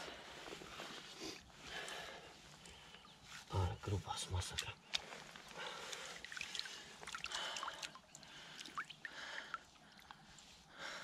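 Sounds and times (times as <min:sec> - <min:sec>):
water splashing and dripping: 0:04.5 - 0:10.2.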